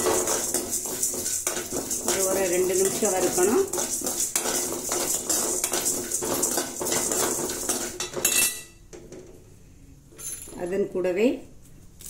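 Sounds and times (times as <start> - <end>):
grains clattering in a pan: 0.0 - 8.5
metal spoon scraping a metal pan: 0.0 - 8.7.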